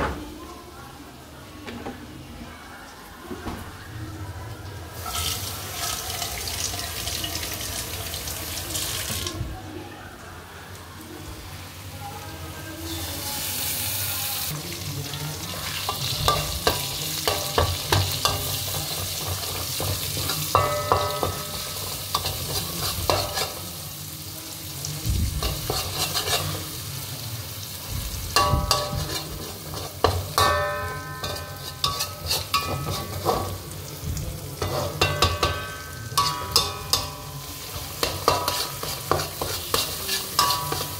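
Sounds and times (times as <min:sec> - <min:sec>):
egg sizzling in a wok: 0:04.9 - 0:09.3, 0:12.9 - 0:40.9
metal spatula scraping a wok: 0:05.0 - 0:06.0, 0:15.6 - 0:23.7, 0:25.4 - 0:26.7, 0:28.4 - 0:33.7, 0:34.6 - 0:40.9
tap water running: 0:05.2 - 0:09.4.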